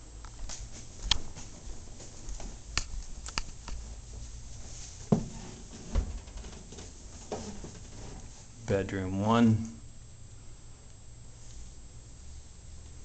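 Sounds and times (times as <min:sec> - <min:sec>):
footsteps: 0:00.2 - 0:08.6
dull thumps: 0:05.0 - 0:08.5.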